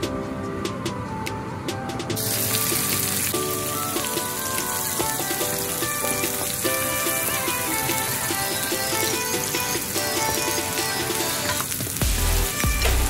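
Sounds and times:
background music: 0.0 - 13.0
onions sizzling in hot oil: 2.2 - 8.7.

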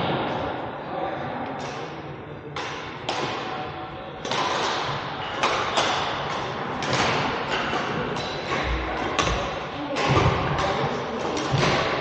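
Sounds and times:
racket hitting shuttlecock: 2.6 - 3.6, 4.2 - 12.0.

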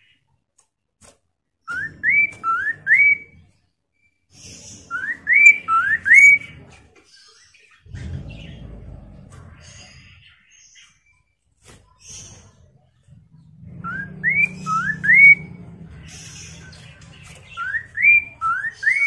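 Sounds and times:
bird whistling rising notes: 1.7 - 3.4, 4.9 - 6.7, 13.8 - 16.7, 17.5 - 19.0.

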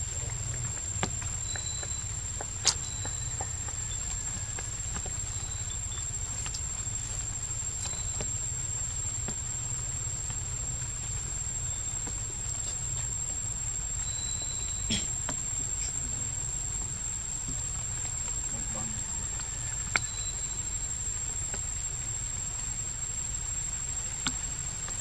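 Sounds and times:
faint ticks: 0.0 - 25.0
high-pitched insect drone: 0.1 - 25.0.

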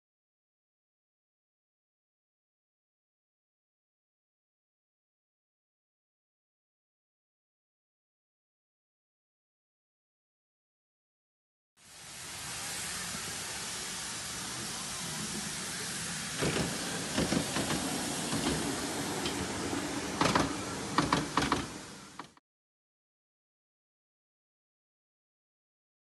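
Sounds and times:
miniature train hissing: 11.8 - 22.4
sharp clicks and knocks: 16.4 - 19.4, 20.2 - 22.4.

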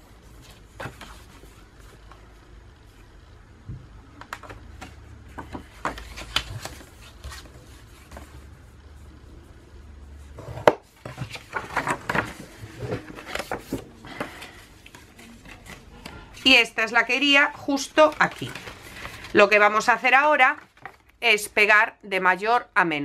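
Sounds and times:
paper rustling: 4.4 - 8.5, 10.4 - 16.7, 17.4 - 21.1.

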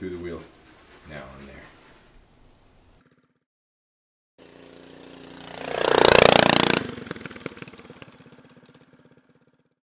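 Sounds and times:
go kart engine passing: 2.7 - 3.4, 4.4 - 9.8.

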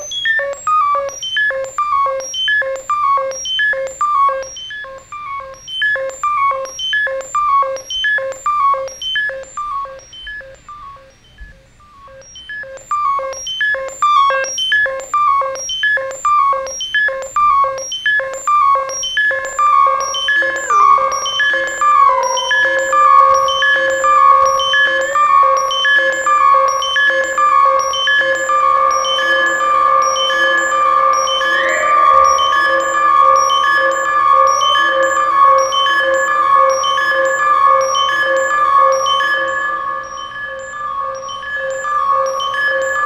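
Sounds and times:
synth pitched bleeps: 18.2 - 43.0.

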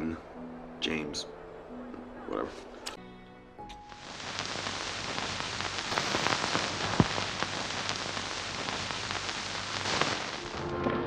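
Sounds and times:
crackling hiss: 3.6 - 10.9.

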